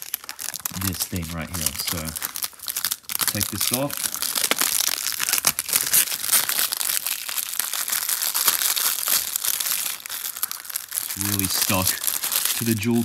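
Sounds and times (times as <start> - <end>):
plastic wrap crinkling and tearing: 0.0 - 13.0.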